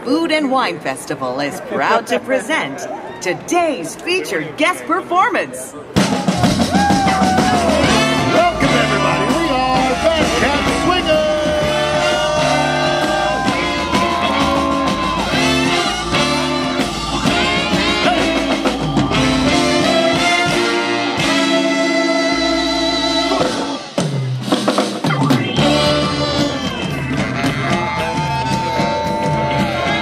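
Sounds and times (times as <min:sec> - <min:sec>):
swing band playing: 0:00.1 - 0:30.0
trumpet: 0:06.0 - 0:24.1, 0:25.2 - 0:30.0
drum kit: 0:06.0 - 0:30.0.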